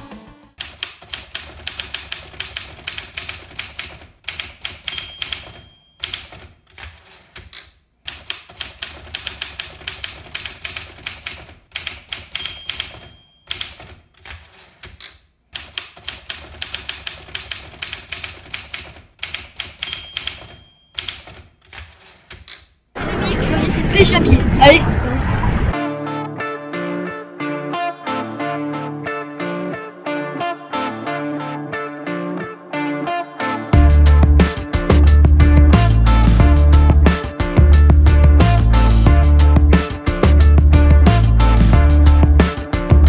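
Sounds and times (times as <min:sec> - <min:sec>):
typewriter keystrokes clacking: 0:00.6 - 0:22.6
typewriter bell dinging: 0:04.4 - 0:06.5, 0:12.0 - 0:14.0, 0:19.2 - 0:21.5.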